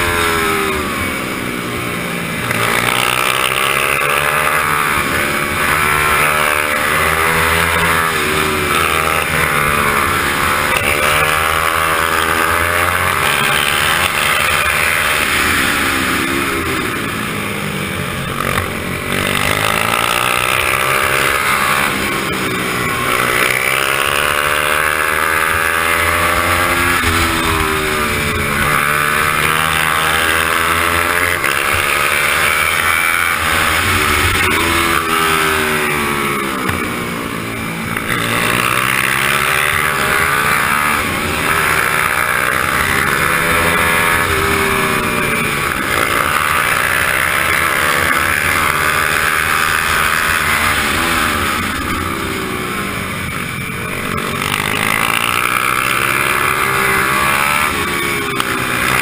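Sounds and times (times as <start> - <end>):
motorbike engine racing: 0.0 - 59.0.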